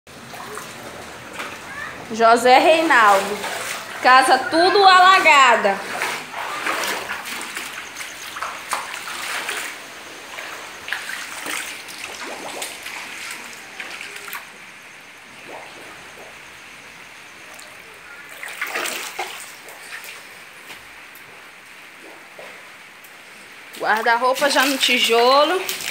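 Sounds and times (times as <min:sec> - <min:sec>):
footsteps wading through water: 0:02.6 - 0:14.6, 0:17.5 - 0:22.7, 0:23.7 - 0:25.9.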